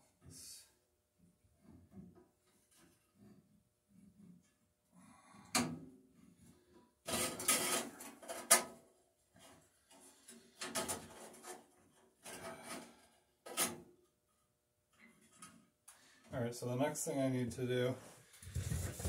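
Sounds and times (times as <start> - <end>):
hands scraping and rubbing: 18.4 - 19.0.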